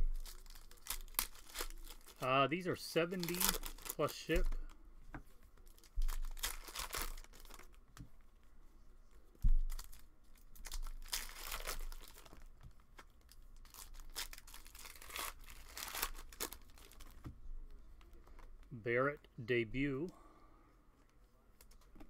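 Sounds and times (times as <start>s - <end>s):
plastic wrappers tearing and crinkling: 0.0s - 4.5s, 5.6s - 7.8s, 9.7s - 12.5s, 13.2s - 17.2s.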